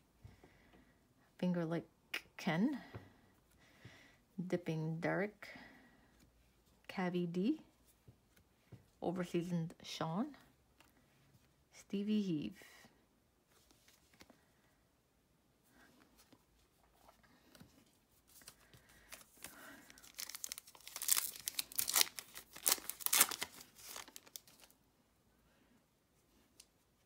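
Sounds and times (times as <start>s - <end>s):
plastic wrapper tearing and crinkling: 19.1s - 24.7s.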